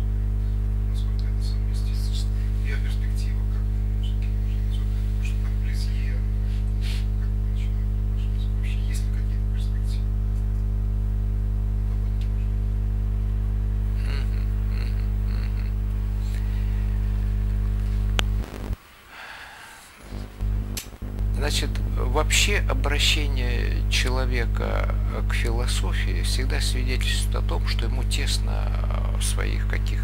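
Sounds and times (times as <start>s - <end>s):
electrical mains hum: 0.0s - 30.0s
faint crackles: 14.0s - 22.0s.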